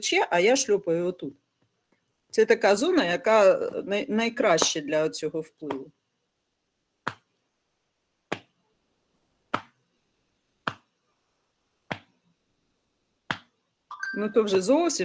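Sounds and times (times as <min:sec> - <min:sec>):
palm slaps on upper arms: 0:07.0 - 0:07.3, 0:08.3 - 0:08.5, 0:09.5 - 0:09.8, 0:10.6 - 0:10.9, 0:11.9 - 0:12.2, 0:13.3 - 0:13.5.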